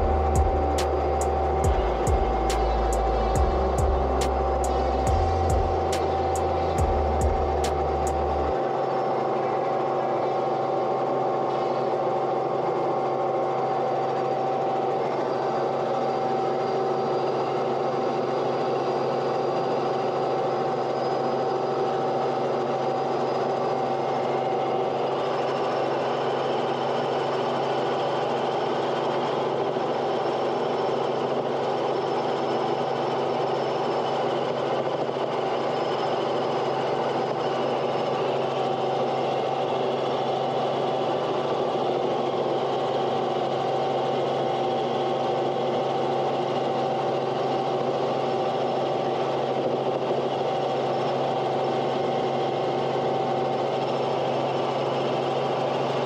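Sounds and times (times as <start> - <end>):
engine droning with whine: 0.0 - 56.0.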